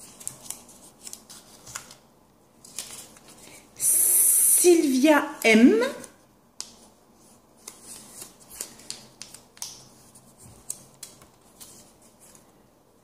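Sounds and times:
paper crackling as folded: 0.0 - 3.5, 7.2 - 12.6.

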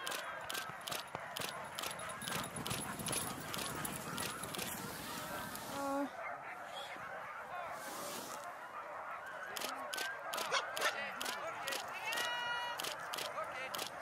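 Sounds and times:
sharp clicks: 0.0 - 4.7, 9.5 - 14.0
sled dogs yelping and howling: 0.0 - 14.0.

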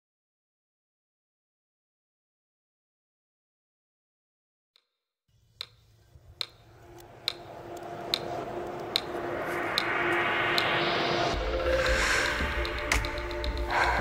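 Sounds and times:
low hum: 5.8 - 14.0
clock ticking: 6.4 - 10.7, 11.8 - 14.0
hissing noise: 6.6 - 14.0.

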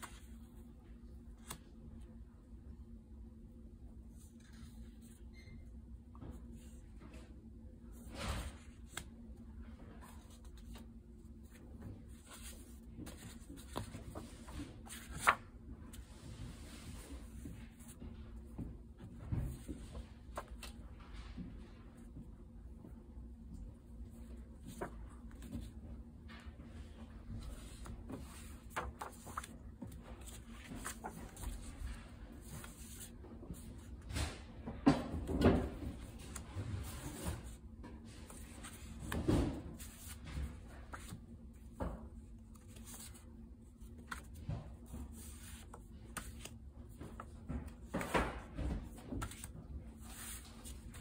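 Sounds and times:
paper rustling: 8.0 - 18.6, 24.1 - 34.4, 36.0 - 51.0.

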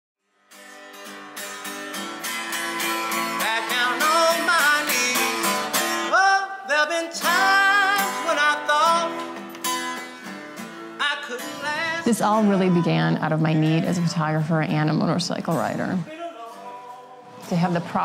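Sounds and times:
acoustic guitar strummed and picked: 0.2 - 18.0
person singing: 3.3 - 9.3, 11.0 - 14.4.

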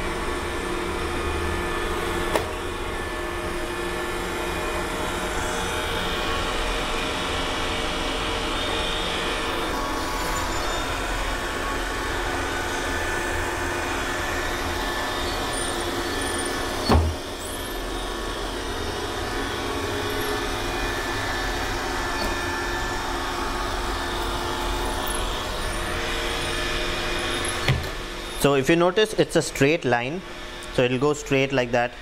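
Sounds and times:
robot vacuum running: 0.0 - 29.6
thump: 16.9 - 17.2.

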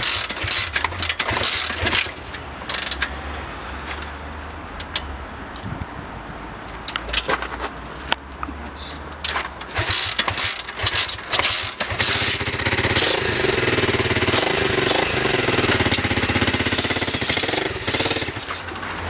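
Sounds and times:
motorbike engine sputtering and running: 0.0 - 3.0, 9.2 - 19.0
motorbike engine revving: 0.0 - 3.1, 9.6 - 19.0.

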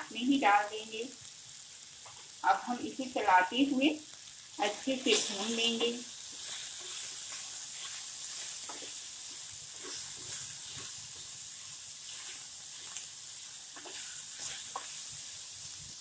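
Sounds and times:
vegetables sizzling in a pan: 0.0 - 16.0
spatula scraping a pan: 5.0 - 15.4.

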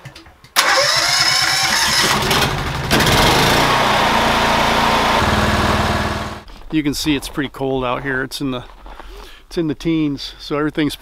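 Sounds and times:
generator engine starting and running: 0.6 - 6.5.

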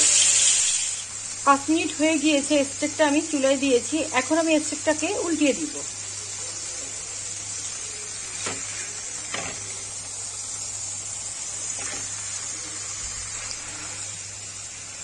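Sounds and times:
steak sizzling in a frying pan: 0.0 - 15.0.

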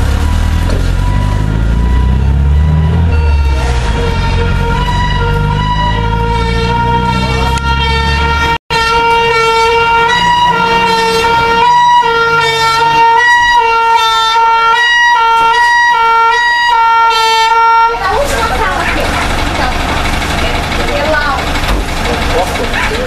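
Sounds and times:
emergency vehicle siren: 0.0 - 23.0.

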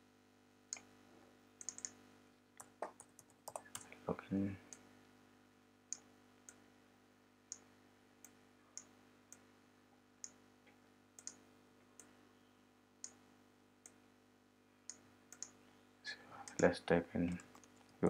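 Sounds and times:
faint steady hum: 0.0 - 18.0
computer mouse clicking: 1.6 - 2.0, 2.6 - 4.0, 11.2 - 11.4, 14.9 - 15.6, 17.4 - 17.9.

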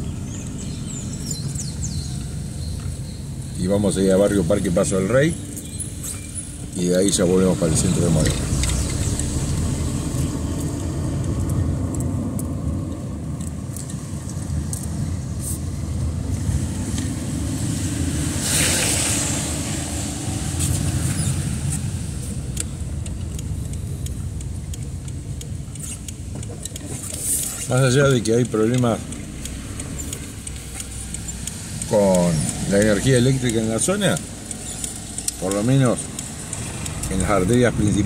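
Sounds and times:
car engine and tyre rumble: 0.0 - 38.0
passing vehicle tyre spray: 15.3 - 22.6.

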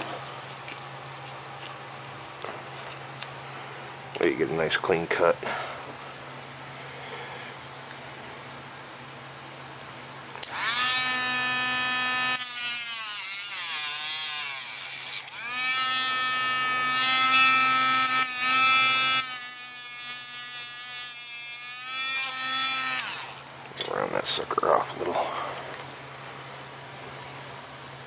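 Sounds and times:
rotary tool motor whining: 10.4 - 23.4.

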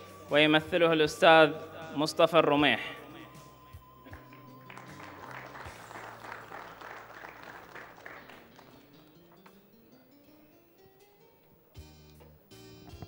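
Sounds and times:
soft background music: 0.0 - 13.0
audience applauding: 4.1 - 9.6.

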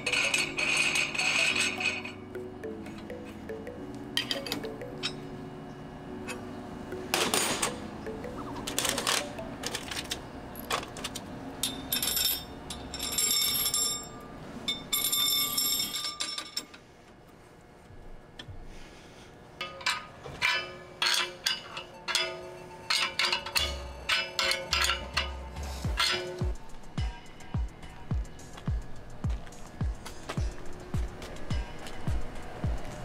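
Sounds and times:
metal filter plates clinking: 19.6 - 25.4, 26.0 - 26.4.

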